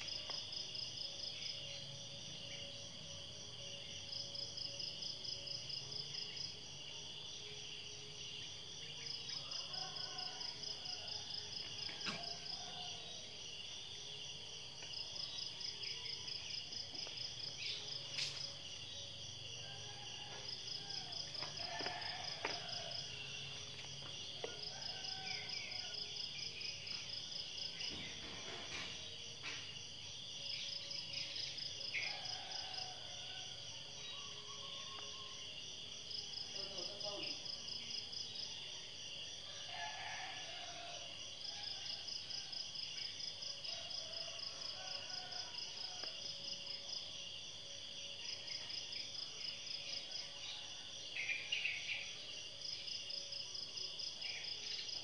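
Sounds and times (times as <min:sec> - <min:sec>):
high pulsing insect call: 0:00.0 - 0:55.0
insect chorus: 0:00.0 - 0:55.0.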